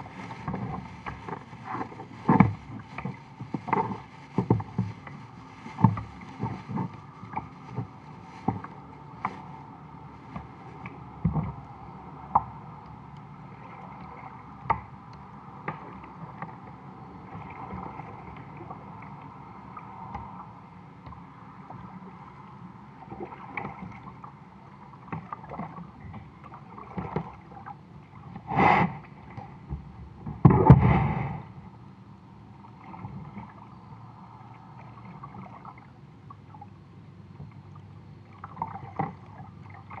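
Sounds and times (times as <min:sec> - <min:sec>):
water splashing: 0:00.0 - 0:09.6, 0:23.0 - 0:29.6, 0:32.6 - 0:33.8, 0:34.5 - 0:36.7, 0:37.4 - 0:40.0
water lapping at kayak hull: 0:00.0 - 0:40.0.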